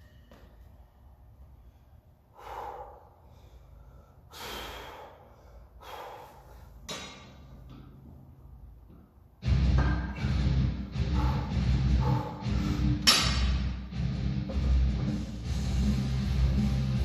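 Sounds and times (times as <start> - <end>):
man breathing hard: 1.5 - 6.9, 10.3 - 13.1.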